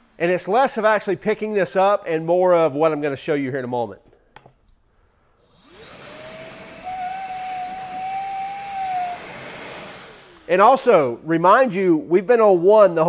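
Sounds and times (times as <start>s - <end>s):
shop vacuum motor whine: 5.4s - 11.1s
vacuum sucking up sand: 5.5s - 11.2s.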